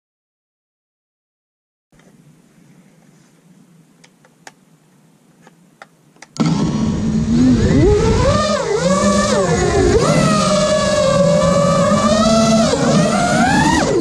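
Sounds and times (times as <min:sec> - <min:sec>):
low hiss: 0:02.0 - 0:06.4
drone motors whining: 0:06.4 - 0:14.0.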